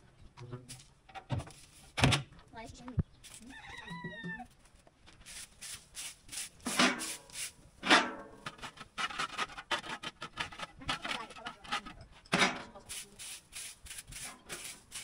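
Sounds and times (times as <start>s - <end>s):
broom sweeping dirt: 1.4s - 2.0s, 5.2s - 9.4s, 12.8s - 15.0s
scraping on dirt ground: 3.2s - 15.0s.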